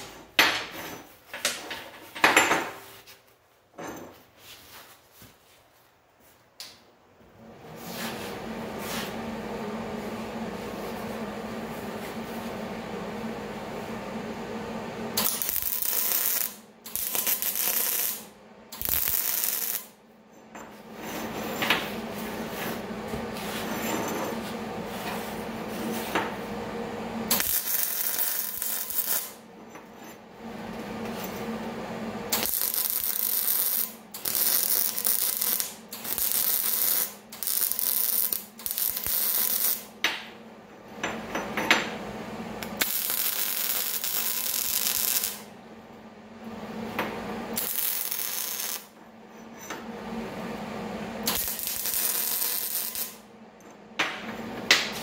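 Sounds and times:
welder arc crackling: 15.2s - 20.0s, 27.3s - 29.4s, 32.3s - 39.9s, 42.6s - 45.5s, 47.6s - 48.9s, 51.2s - 53.2s.

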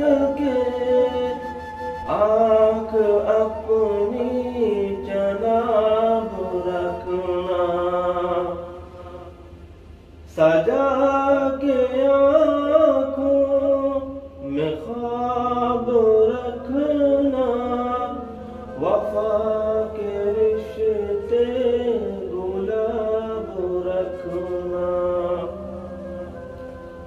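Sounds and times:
man singing melodic phrases: 0.0s - 9.5s, 10.3s - 26.6s
soft steady drone: 0.0s - 27.0s.

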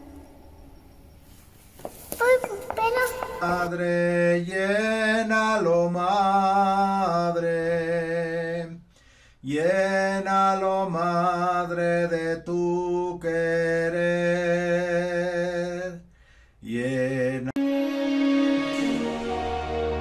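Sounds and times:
man singing hymn solo: 3.4s - 8.8s, 9.4s - 16.0s, 16.6s - 17.6s.

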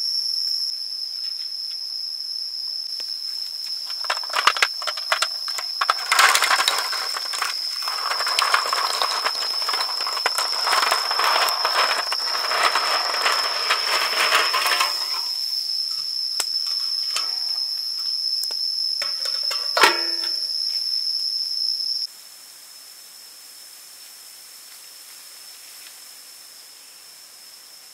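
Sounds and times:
eggs clattering in a metal bowl: 3.9s - 15.3s, 16.7s - 17.6s, 19.0s - 20.4s.

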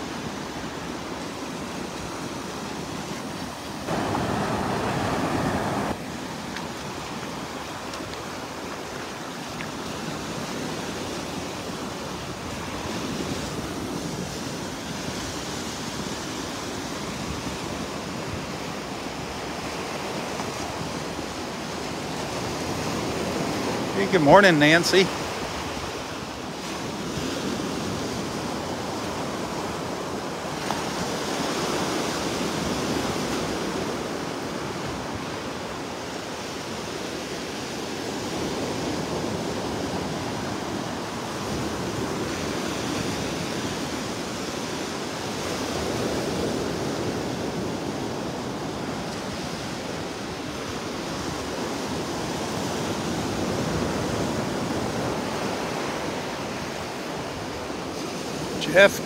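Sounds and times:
surf breaking on shore: 0.0s - 59.0s
wind on microphone: 3.9s - 7.3s.

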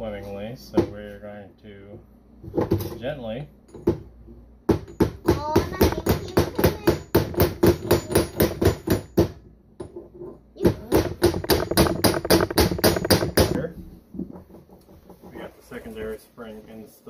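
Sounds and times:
hammer tapping on metal shaft: 10.8s - 13.6s.

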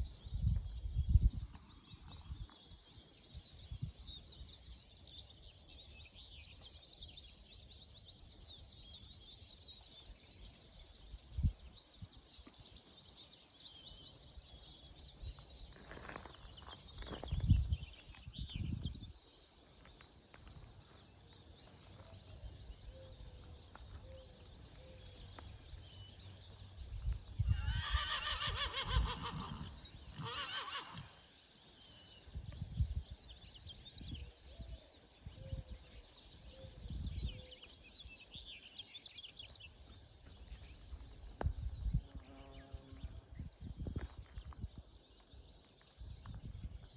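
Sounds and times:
small birds chirping: 0.0s - 46.9s
horse whinnying: 27.5s - 31.2s.

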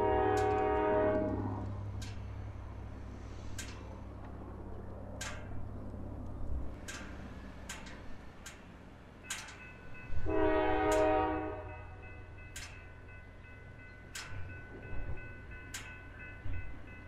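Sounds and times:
locomotive air horn blast: 0.0s - 1.6s, 10.3s - 11.8s
low rumble of train: 0.0s - 17.0s
sharp clicks: 3.5s - 9.7s.

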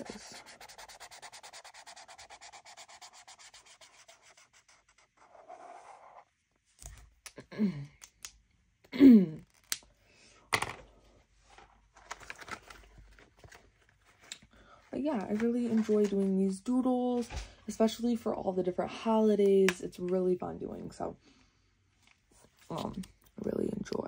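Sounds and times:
marker scribbling on paper: 0.0s - 6.2s.

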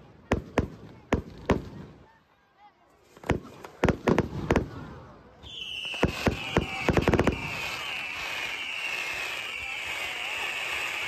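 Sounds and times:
firework whistle falling in pitch: 5.4s - 11.0s.

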